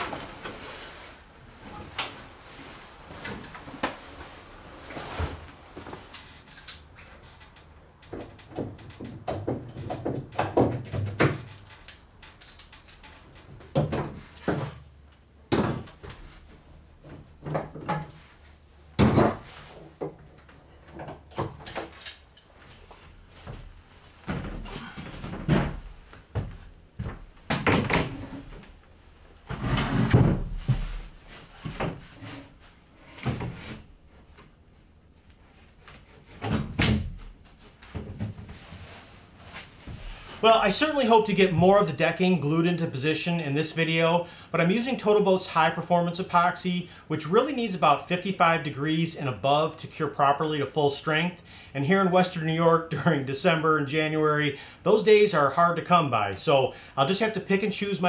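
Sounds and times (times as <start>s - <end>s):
wood panels knocking: 8.1s - 11.5s.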